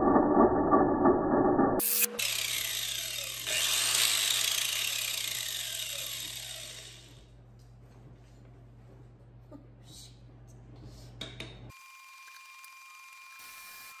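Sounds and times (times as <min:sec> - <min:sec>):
angle grinder whining: 0:00.0 - 0:07.3.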